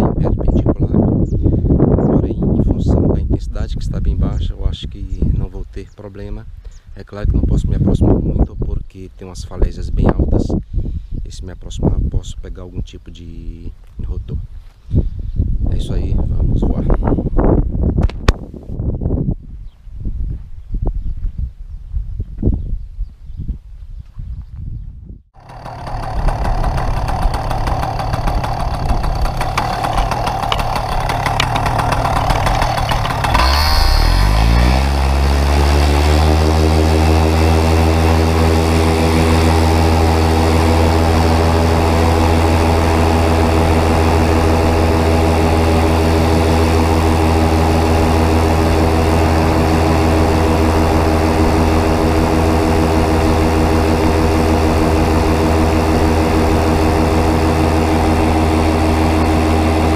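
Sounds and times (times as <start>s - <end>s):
wind noise: 0.0s - 12.9s, 13.7s - 59.9s
paramotor engine and propeller: 25.4s - 59.9s.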